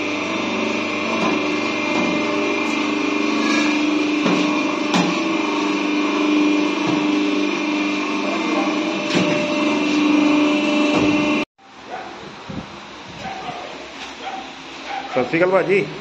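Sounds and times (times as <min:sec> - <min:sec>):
machine motor hum: 0:00.0 - 0:11.5.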